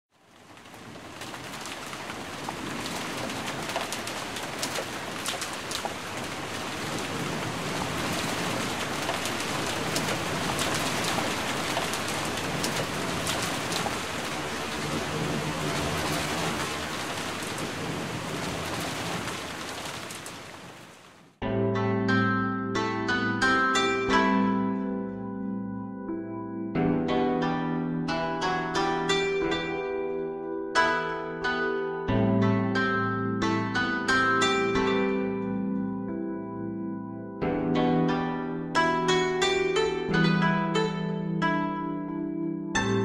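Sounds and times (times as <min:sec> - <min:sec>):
steady rain falling: 0:00.1 - 0:21.4.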